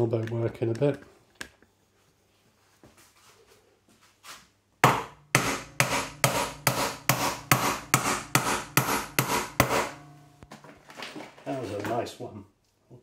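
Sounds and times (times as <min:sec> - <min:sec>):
hammer hitting nail into wood: 0:04.8 - 0:10.1.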